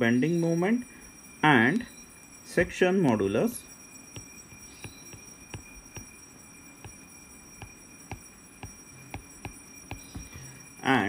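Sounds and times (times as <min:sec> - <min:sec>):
low steady hum: 0:00.0 - 0:11.0
stylus tapping on glass screen: 0:04.1 - 0:06.2, 0:06.8 - 0:10.6.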